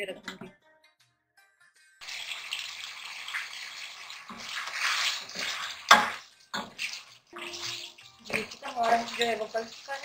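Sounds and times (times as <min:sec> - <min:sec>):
gravy sizzling in a pot: 0:02.0 - 0:10.0
wooden spoon stirring: 0:04.4 - 0:10.0.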